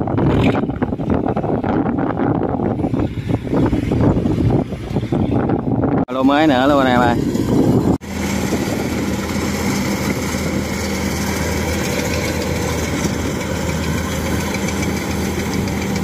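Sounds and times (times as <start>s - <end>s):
combine harvester engine hum: 0.0s - 16.0s
machine clatter: 8.3s - 16.0s.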